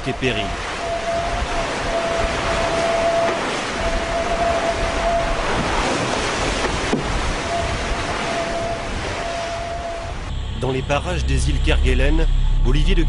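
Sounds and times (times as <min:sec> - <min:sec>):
thin steady whistle: 0:00.0 - 0:05.6, 0:07.4 - 0:10.9
rushing sea water: 0:00.0 - 0:11.6
wind: 0:00.0 - 0:13.0.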